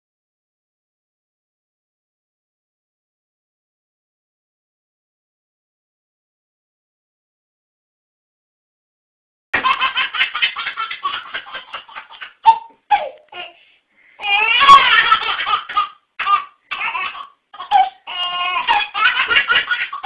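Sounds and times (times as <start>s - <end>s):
baby belly-laughing: 9.6s - 13.6s, 14.2s - 20.0s.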